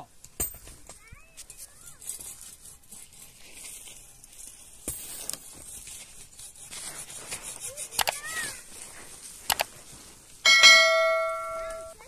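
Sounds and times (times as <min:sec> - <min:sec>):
dry sticks rustling and scraping: 0:00.2 - 0:12.0
small clicks: 0:07.9 - 0:08.3, 0:09.4 - 0:09.7.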